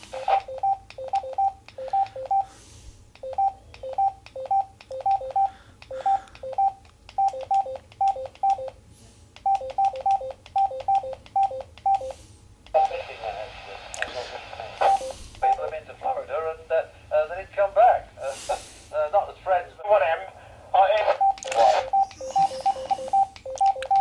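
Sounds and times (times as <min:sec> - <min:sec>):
short electronic beeps: 0:21.2 - 0:24.0.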